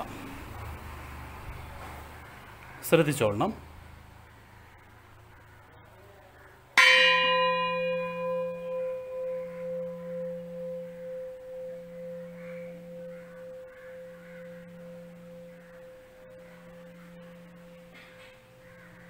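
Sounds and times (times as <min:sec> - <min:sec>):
bronze vessel struck with metal: 0:06.8 - 0:13.2
bronze vessel ringing: 0:06.8 - 0:19.0.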